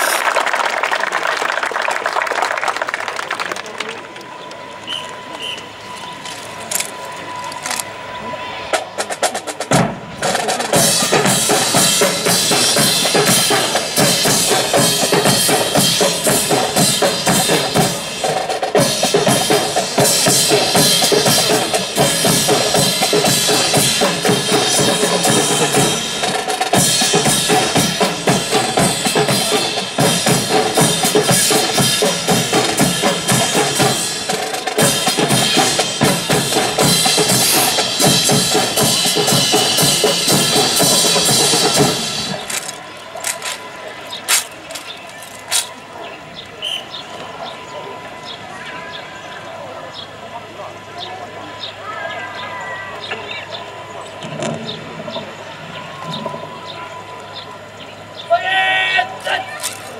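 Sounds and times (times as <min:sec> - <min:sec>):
marching snare and bass drums: 0:08.7 - 0:45.8.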